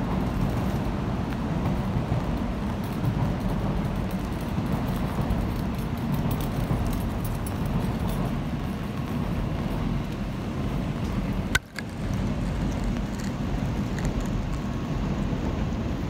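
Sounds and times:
rain: 0.0s - 16.0s
traffic: 0.0s - 16.0s.

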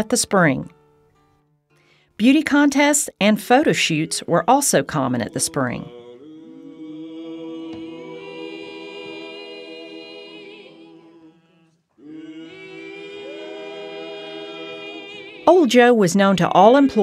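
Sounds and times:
a cappella voices singing harmony: 3.5s - 17.0s.

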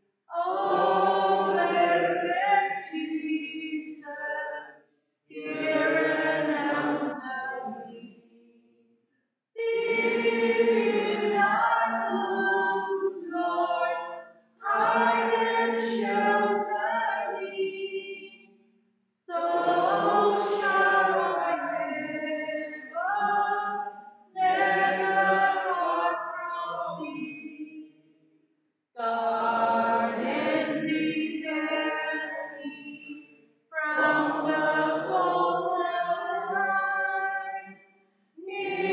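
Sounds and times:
voices singing a hymn: 0.3s - 4.3s, 5.3s - 8.1s, 9.6s - 18.2s, 19.3s - 23.8s, 24.4s - 27.4s, 29.0s - 32.7s, 33.8s - 37.7s, 38.4s - 38.9s.

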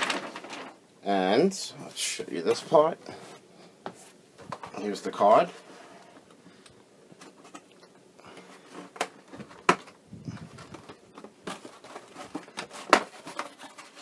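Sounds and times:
plastic packaging crinkling: 0.0s - 0.8s.

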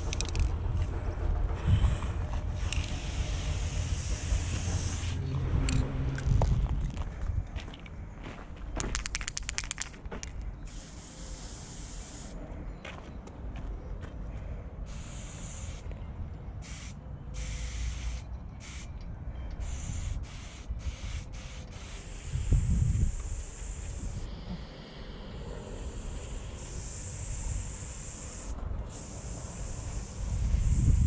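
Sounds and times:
rattling clicks: 0.0s - 0.9s
low wind rumble on microphone: 0.0s - 8.8s, 18.3s - 31.0s
spray paint can hissing: 2.5s - 5.2s, 10.7s - 12.4s, 14.9s - 15.9s, 16.6s - 18.9s, 19.6s - 31.0s.

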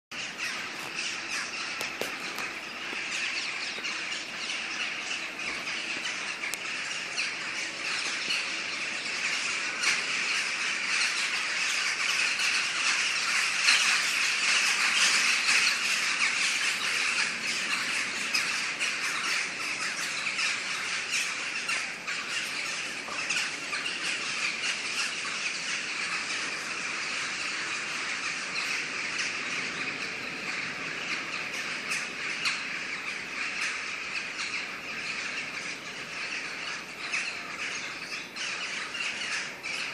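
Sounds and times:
flock of birds chattering: 0.1s - 39.9s.

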